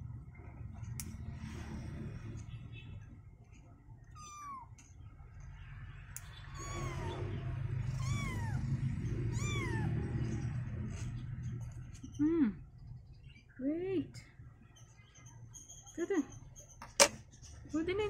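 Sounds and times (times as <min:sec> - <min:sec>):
kitten meowing: 0:04.1 - 0:04.7, 0:06.5 - 0:10.2.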